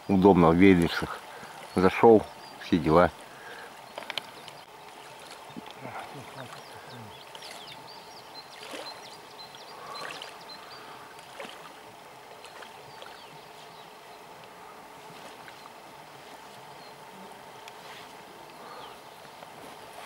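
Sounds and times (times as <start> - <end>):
river flowing: 0.0 - 20.0
water splashing around wading legs: 4.3 - 7.8, 8.5 - 9.1, 9.7 - 10.5, 11.2 - 13.7, 15.0 - 16.7.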